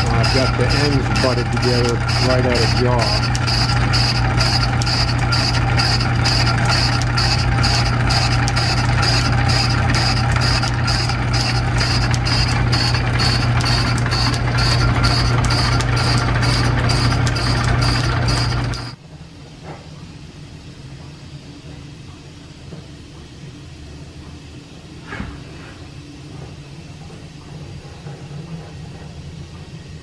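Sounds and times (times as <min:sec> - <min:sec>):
lathe ticking: 0:00.0 - 0:19.0
metal lathe humming: 0:00.0 - 0:19.0.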